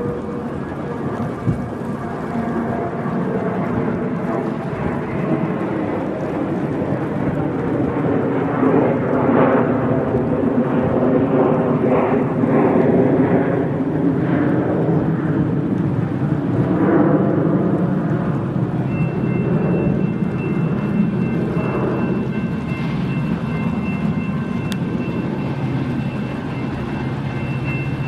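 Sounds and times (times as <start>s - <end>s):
locomotive engine rumbling: 0.0s - 10.7s, 15.4s - 28.0s.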